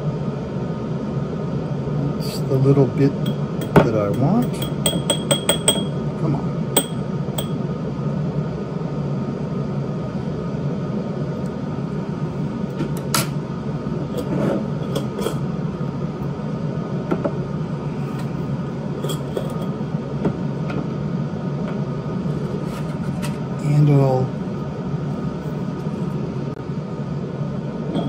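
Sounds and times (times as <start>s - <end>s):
steady low hum: 0.0s - 28.0s
glass jars and lid clinking: 3.2s - 6.0s, 6.8s - 7.6s.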